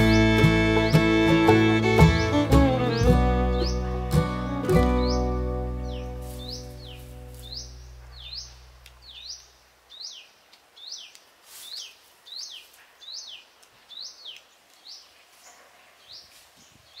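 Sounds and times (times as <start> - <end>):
background music: 0.0 - 7.6
bird calling: 0.0 - 14.4.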